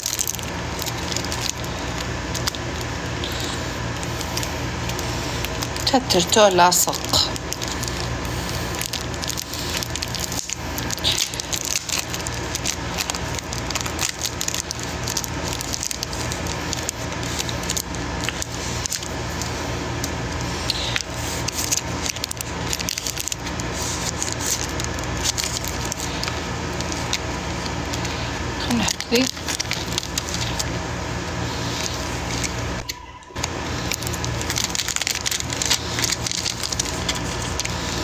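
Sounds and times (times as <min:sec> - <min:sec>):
crackling and clicking noise: 0:00.0 - 0:30.8, 0:31.6 - 0:38.0
steady low hum: 0:00.0 - 0:38.0.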